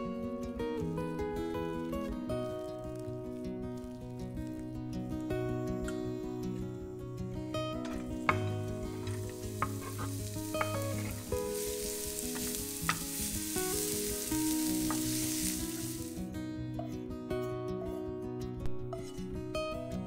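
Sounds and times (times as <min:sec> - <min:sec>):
shallot sizzling in oil: 0:02.3 - 0:05.4, 0:07.8 - 0:16.3.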